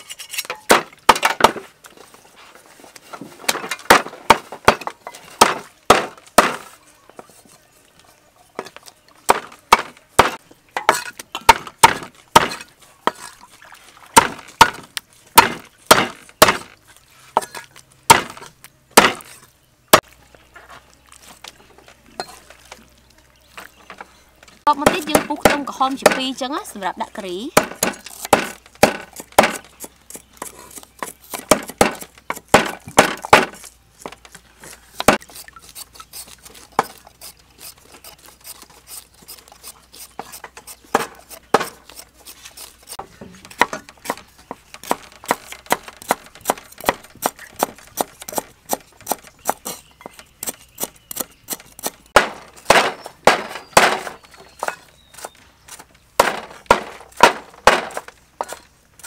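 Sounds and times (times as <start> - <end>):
knives chopping on wooden blocks: 0.4 - 1.7, 3.5 - 6.7, 8.6 - 13.3, 14.2 - 16.8, 17.4 - 19.3, 27.6 - 35.3, 40.0 - 58.6.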